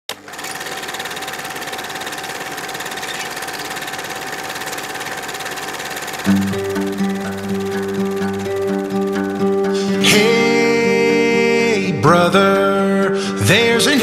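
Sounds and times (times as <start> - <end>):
film projector clattering: 0.1 - 10.2.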